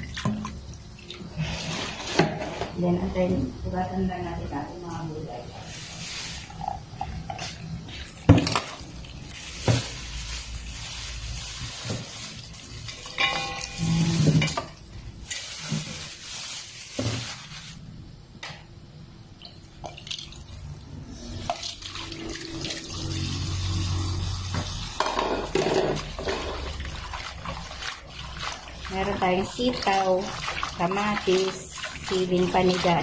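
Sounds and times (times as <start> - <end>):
tap water running into bowl: 0.0 - 2.5, 21.4 - 33.0.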